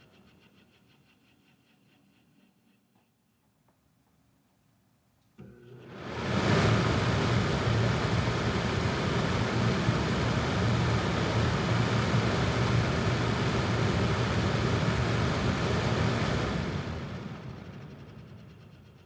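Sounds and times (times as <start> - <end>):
fan wind on microphone: 5.8 - 19.0.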